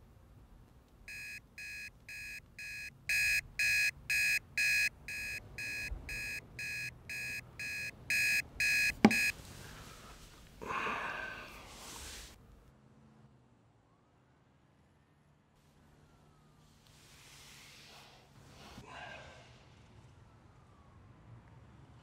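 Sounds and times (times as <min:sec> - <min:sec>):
phone alarm beeping: 0:01.1 - 0:09.4.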